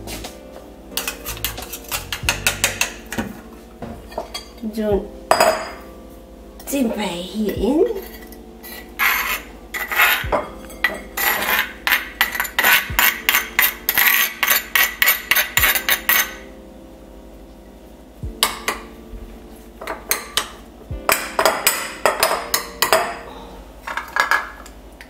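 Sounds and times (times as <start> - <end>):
metal spoon scraping stone mortar: 1.0 - 2.6, 8.0 - 16.4.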